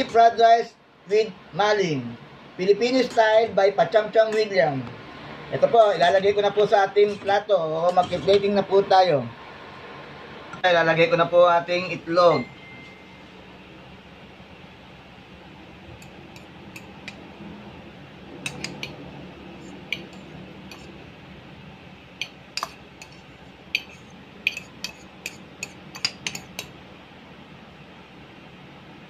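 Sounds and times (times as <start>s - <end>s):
metal spoon clinking on dish: 18.4s - 19.0s, 22.2s - 26.7s.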